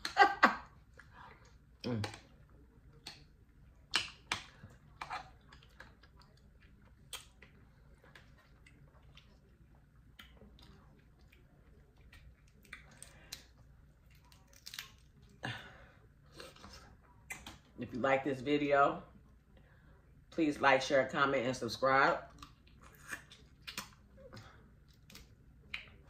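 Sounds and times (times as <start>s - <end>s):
chewing and mouth smacks: 0.9s - 15.4s, 16.3s - 17.7s, 22.3s - 26.0s.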